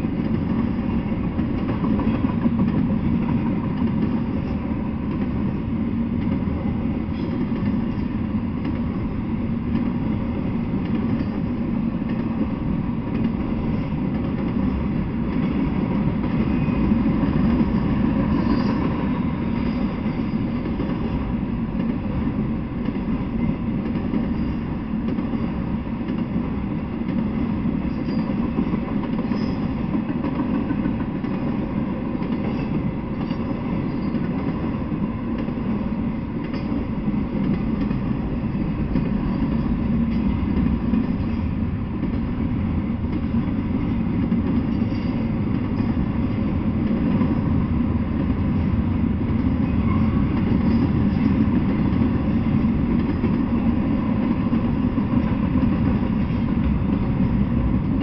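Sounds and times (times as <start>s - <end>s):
train wheels rolling on rails: 0.0s - 58.0s.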